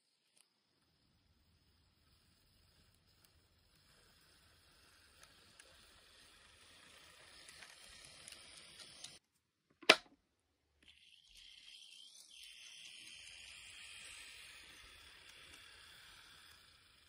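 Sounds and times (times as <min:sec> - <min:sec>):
model train running on track: 0:00.1 - 0:09.2, 0:10.9 - 0:17.0.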